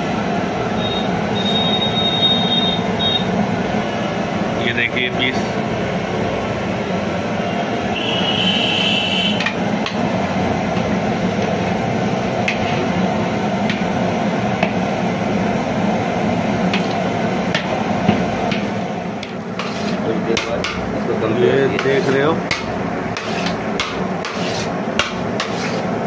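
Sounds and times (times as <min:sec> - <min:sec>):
gas burner roaring: 0:00.0 - 0:26.0
metal skimmer scraping a pot: 0:19.6 - 0:20.0.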